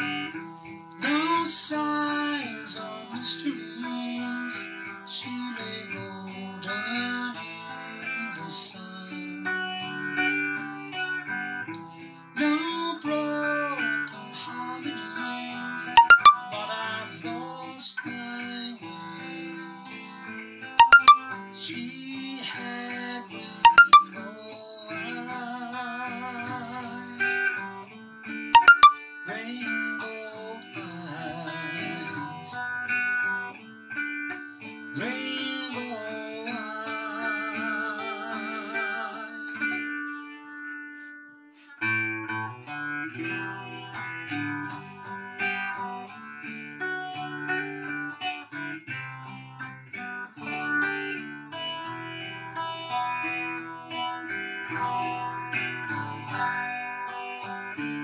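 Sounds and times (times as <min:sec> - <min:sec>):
fingerstyle acoustic guitar: 0:00.0 - 0:16.5, 0:25.2 - 0:58.0
wavering held melody line: 0:16.0 - 0:16.4, 0:20.8 - 0:21.2, 0:23.7 - 0:24.1, 0:28.6 - 0:29.0.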